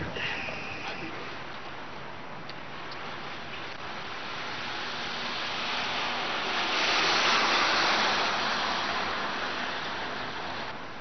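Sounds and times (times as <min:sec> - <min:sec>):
car passing: 0:03.1 - 0:11.0.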